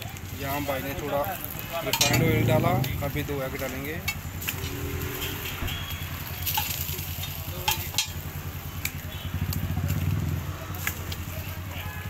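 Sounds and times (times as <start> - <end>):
spatula scraping on griddle: 1.4 - 8.2.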